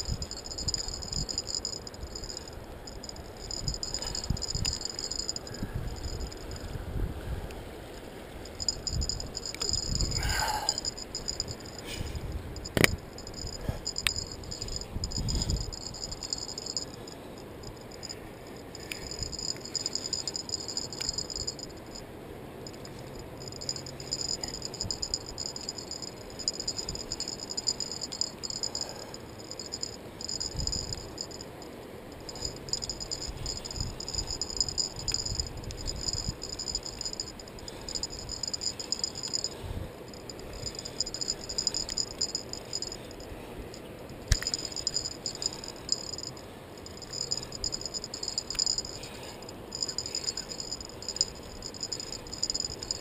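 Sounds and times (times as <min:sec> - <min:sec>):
fishing reel whirring: 0:00.0 - 0:06.6, 0:08.5 - 0:11.9, 0:12.6 - 0:17.0, 0:17.6 - 0:22.0, 0:22.7 - 0:31.4, 0:32.2 - 0:39.5, 0:40.1 - 0:43.3, 0:44.2 - 0:53.0
wind on camera: 0:00.0 - 0:16.9, 0:29.8 - 0:31.4, 0:32.2 - 0:43.1.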